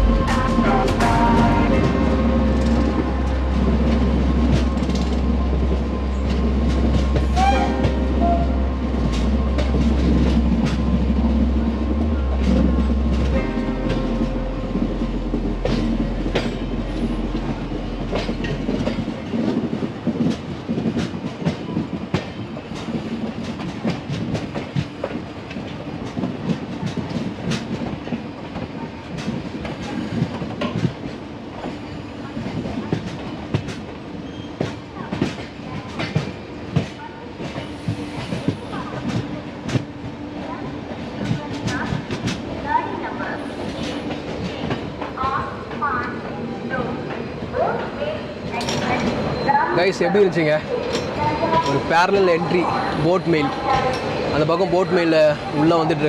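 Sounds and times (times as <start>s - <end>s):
deep low rumble: 0.0s - 7.4s, 8.0s - 19.5s
train wheels clattering over rails: 15.5s - 49.5s.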